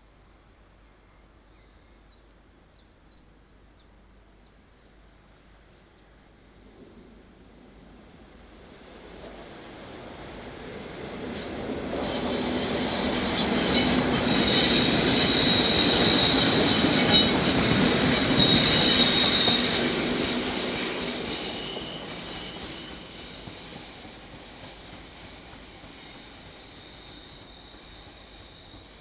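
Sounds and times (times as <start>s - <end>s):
high wheel squeal: 12.0s - 29.0s.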